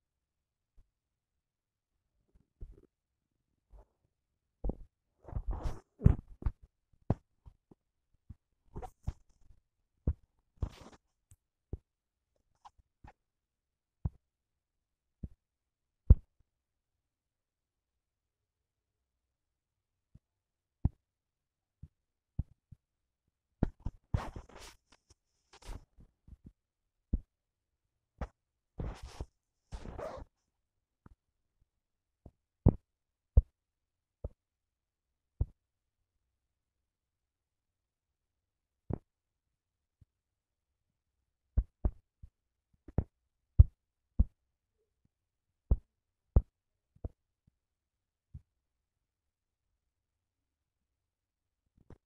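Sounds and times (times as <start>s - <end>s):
scratchy rubbing on touchscreen: 24.1s - 25.9s, 28.8s - 30.3s.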